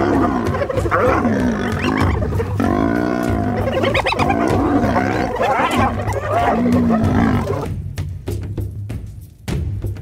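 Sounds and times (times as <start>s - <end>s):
lions growling and snarling: 0.0s - 7.7s.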